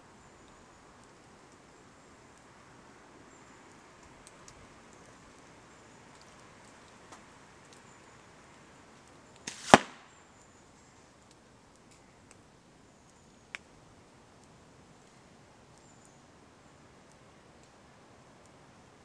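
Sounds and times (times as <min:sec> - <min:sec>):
slingshot whoosh and snap: 0:09.5 - 0:10.0.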